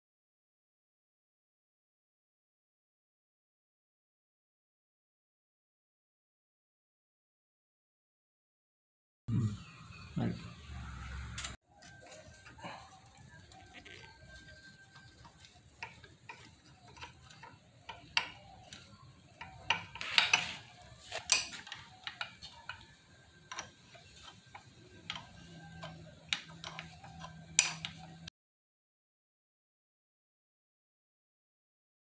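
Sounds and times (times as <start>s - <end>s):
metal tool clicks and taps: 13.5s - 28.3s.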